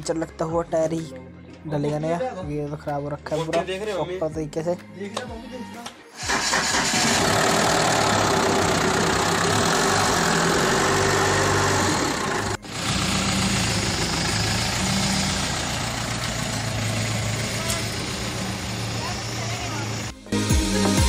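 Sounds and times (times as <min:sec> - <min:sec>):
car engine idling: 0:06.2 - 0:20.2.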